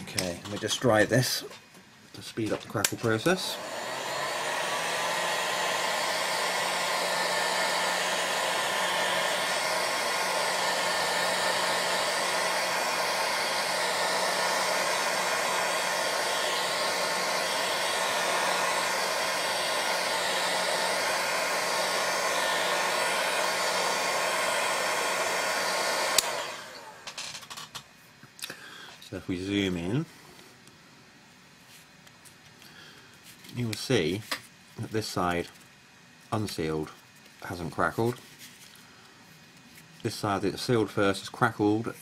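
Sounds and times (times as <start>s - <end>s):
heat tool blowing hot air: 2.4s - 27.2s.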